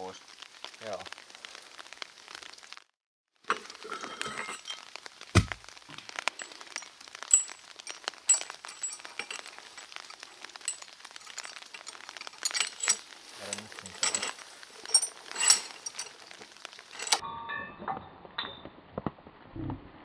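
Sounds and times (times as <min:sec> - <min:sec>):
heavy thud: 0:05.3 - 0:05.6
metal weight plates clinking: 0:06.4 - 0:18.6.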